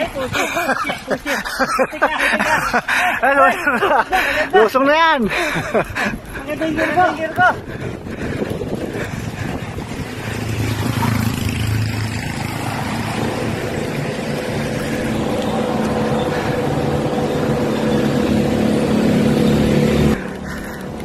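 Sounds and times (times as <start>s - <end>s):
bicycle tyres rolling on tarmac: 0.0s - 21.0s
wind rushing over microphone: 5.8s - 21.0s.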